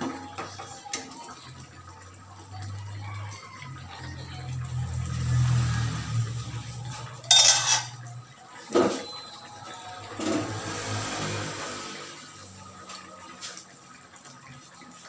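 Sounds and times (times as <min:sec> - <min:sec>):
metal ladle stirring stew: 0:06.9 - 0:08.1.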